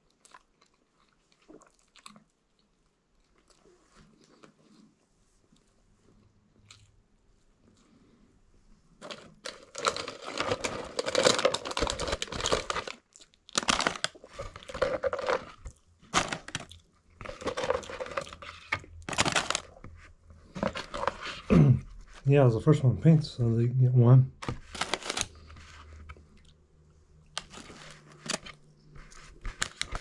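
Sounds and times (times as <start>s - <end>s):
paper packaging rustling: 9.0s - 22.3s, 24.4s - 26.2s, 27.4s - 30.0s.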